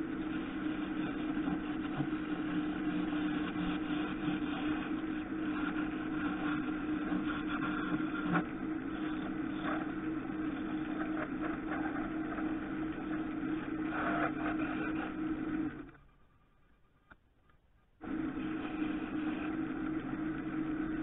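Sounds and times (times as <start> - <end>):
lathe motor humming: 0.0 - 15.9, 18.0 - 21.0.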